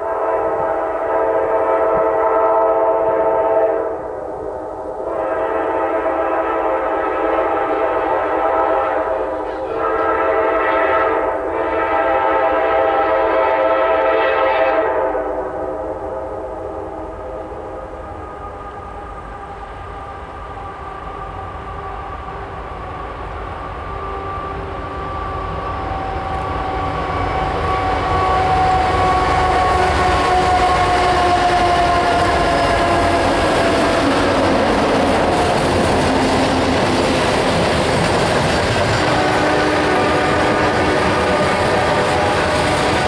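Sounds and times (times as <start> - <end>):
diesel locomotives droning: 0.0 - 43.0
freight cars rumbling and clattering: 31.6 - 43.0.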